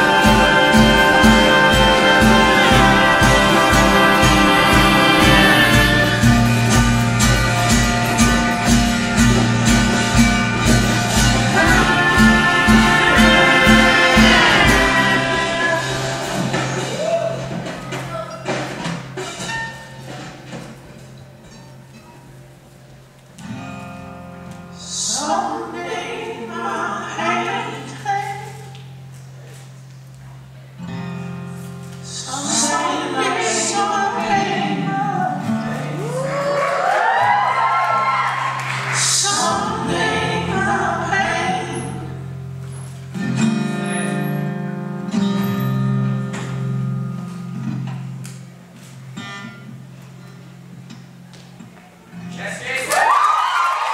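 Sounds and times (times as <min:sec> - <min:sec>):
person singing: 0:00.0 - 0:06.9, 0:11.2 - 0:17.4, 0:32.1 - 0:36.6, 0:39.0 - 0:42.2
sustained music chord: 0:00.0 - 0:16.6
acoustic guitar strummed chords: 0:00.0 - 0:22.6, 0:30.7 - 0:36.2, 0:37.5 - 0:51.3.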